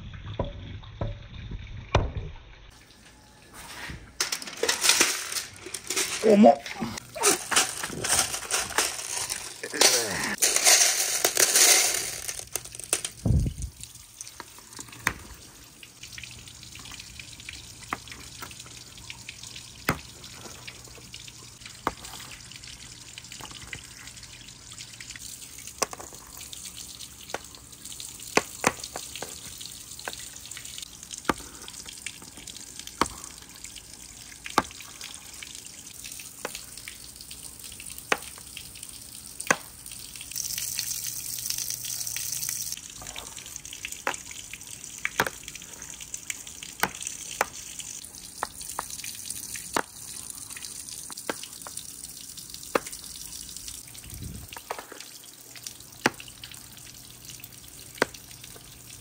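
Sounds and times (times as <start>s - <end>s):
marbles clicking on wooden run: 7.5s - 13.3s.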